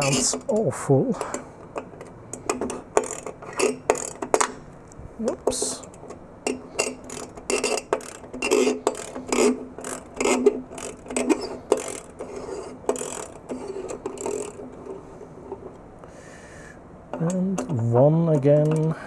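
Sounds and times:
wrench clicking and grinding: 0.0 - 0.6, 1.2 - 15.6.

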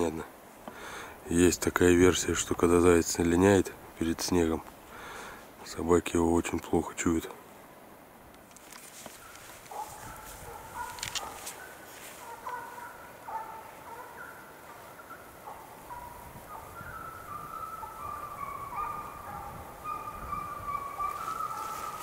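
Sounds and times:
hounds baying: 9.2 - 22.0.

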